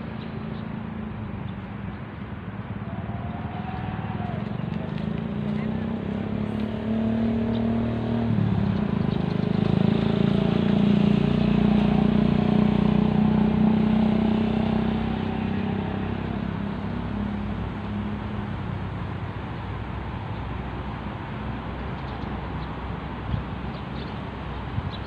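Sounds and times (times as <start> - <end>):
vehicle engine passing by: 2.8 - 19.3.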